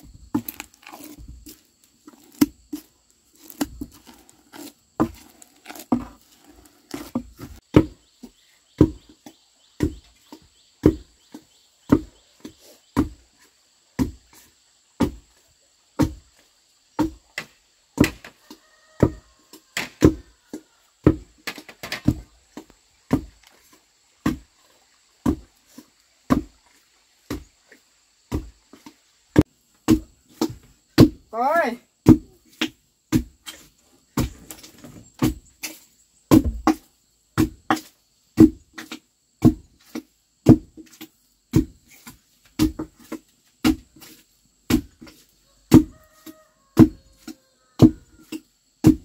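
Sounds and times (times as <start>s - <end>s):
wooden pestle thudding in mortar: 35.2s - 44.1s, 46.8s - 49.0s.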